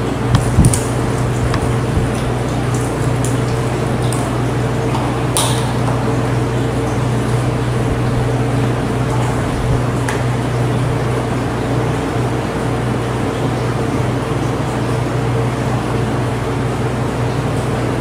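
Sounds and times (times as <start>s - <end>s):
low hum: 0.0s - 5.2s
knocks: 1.5s - 2.2s.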